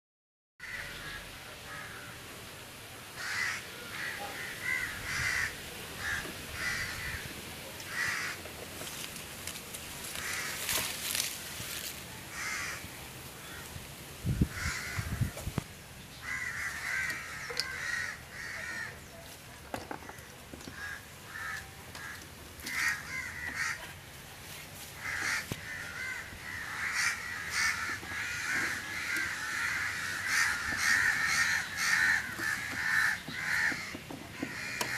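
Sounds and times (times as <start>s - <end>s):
birds calling and chattering: 3.1s - 34.9s.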